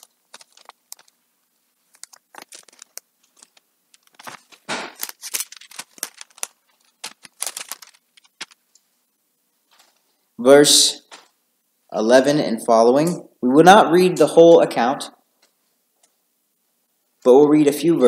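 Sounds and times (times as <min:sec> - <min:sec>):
thin pages rustling and flicking: 0:00.0 - 0:01.2, 0:01.8 - 0:08.7, 0:09.7 - 0:10.1.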